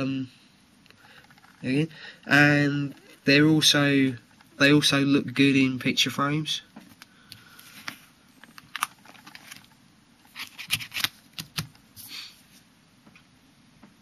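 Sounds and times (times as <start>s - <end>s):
plastic sleeves crinkling: 6.9s - 12.3s.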